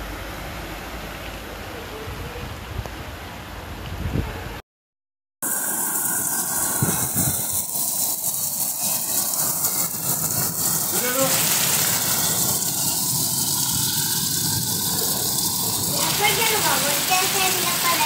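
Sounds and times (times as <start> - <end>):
car splashing through water: 5.4 - 18.0
heavy rain pouring: 5.4 - 18.0.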